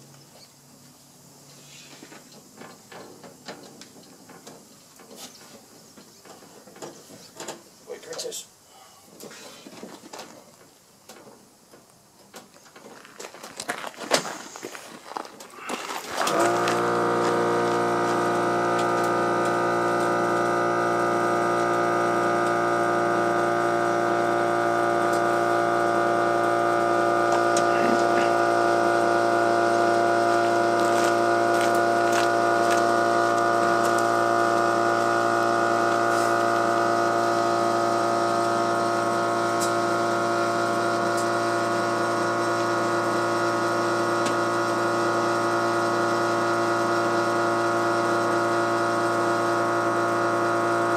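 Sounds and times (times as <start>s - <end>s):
motor humming: 15.7s - 50.9s.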